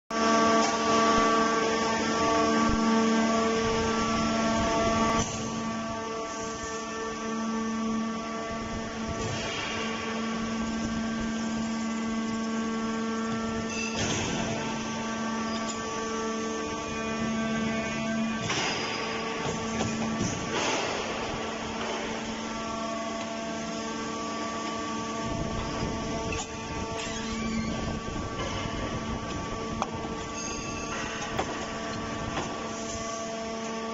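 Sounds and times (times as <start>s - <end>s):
hydraulic pump humming: 0.6s - 33.8s.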